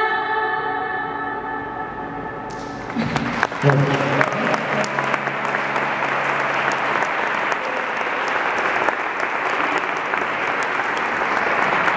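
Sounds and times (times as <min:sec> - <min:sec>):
audience applauding: 0:02.5 - 0:11.9.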